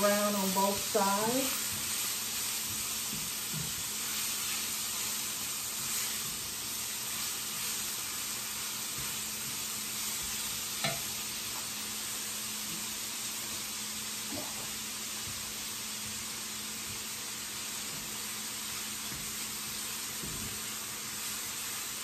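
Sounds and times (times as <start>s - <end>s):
spatula stirring in skillet: 0.0s - 13.7s, 14.3s - 22.0s
meat sizzling in oil: 0.0s - 22.0s.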